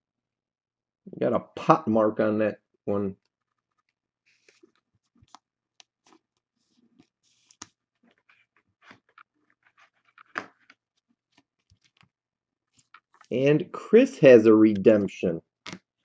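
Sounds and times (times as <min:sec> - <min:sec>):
card rustling in plastic sleeve: 0:03.3 - 0:12.0, 0:12.7 - 0:13.4.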